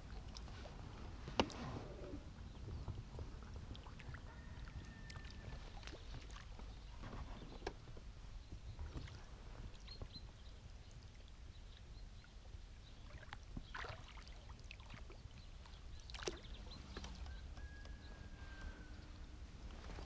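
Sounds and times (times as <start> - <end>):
wind on microphone: 0.0 - 10.7
water splashing and lapping: 0.0 - 20.0.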